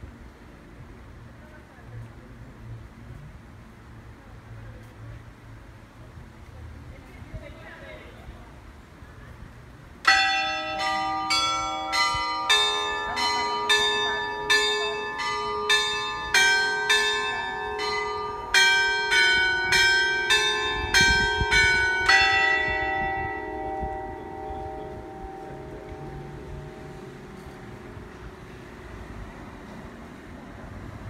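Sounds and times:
carillon bells chiming melody: 0:10.1 - 0:28.4.

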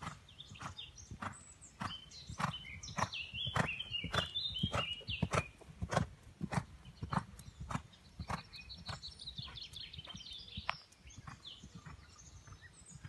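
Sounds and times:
horse hooves on sand: 0:00.0 - 0:13.0
birds chirping and whistling: 0:00.2 - 0:05.9, 0:06.7 - 0:13.0.

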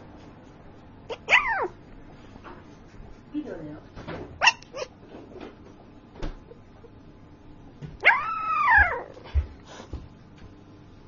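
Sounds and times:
puppy whining howl: 0:01.1 - 0:01.8, 0:08.0 - 0:09.3
puppy yipping: 0:01.1 - 0:01.8, 0:04.4 - 0:04.9, 0:08.0 - 0:09.2.

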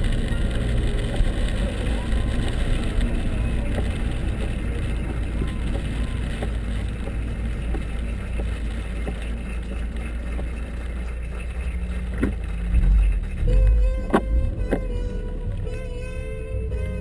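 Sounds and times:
car engine and tyres rumbling: 0:00.0 - 0:17.0
windshield wipers sweeping: 0:00.0 - 0:17.0.

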